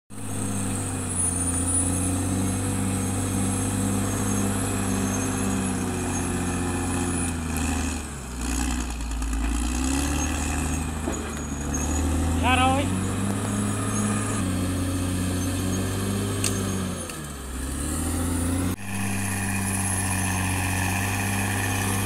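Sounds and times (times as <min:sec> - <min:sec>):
bulldozer diesel engine running: 0:00.1 - 0:22.0.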